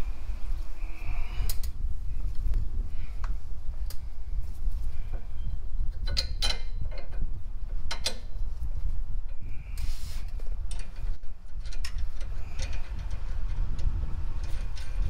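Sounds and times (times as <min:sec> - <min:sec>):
steady low rumble: 0:00.0 - 0:15.0
short hiss: 0:09.7 - 0:10.3
tools clicking on engine: 0:10.7 - 0:15.0.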